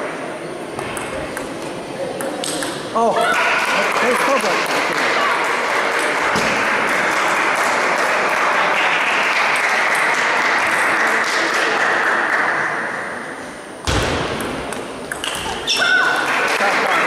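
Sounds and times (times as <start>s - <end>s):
spectators clapping: 3.0s - 12.9s, 15.8s - 17.0s.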